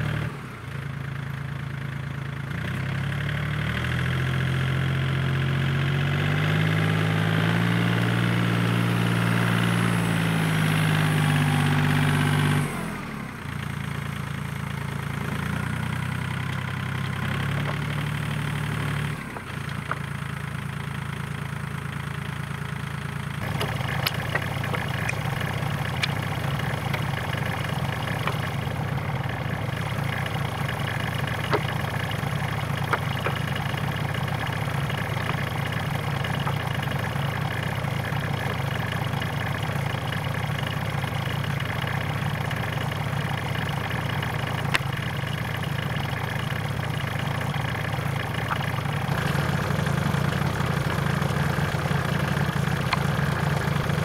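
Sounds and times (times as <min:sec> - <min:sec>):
tractor engine idling: 0:00.0 - 0:54.0
boards knocking: 0:19.3 - 0:20.1, 0:23.4 - 0:28.7, 0:31.3 - 0:32.0.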